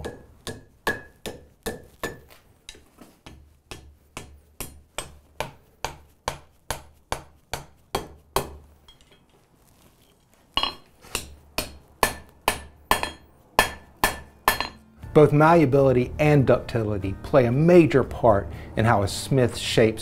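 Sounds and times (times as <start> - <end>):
hammer striking iron on anvil: 0.0 - 9.2, 10.6 - 14.9.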